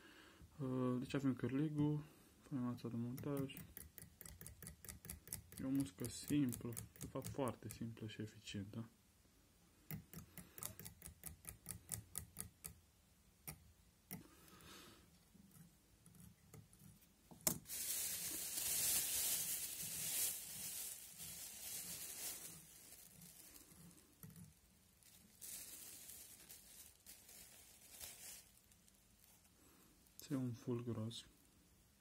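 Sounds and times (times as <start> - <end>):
thread wrapping ticks: 3.0 - 7.9
soft rubbing hiss: 14.3 - 31.6.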